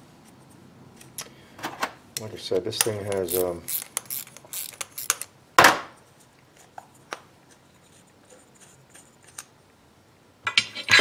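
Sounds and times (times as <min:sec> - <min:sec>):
small metal parts clicking: 0:02.8 - 0:05.3.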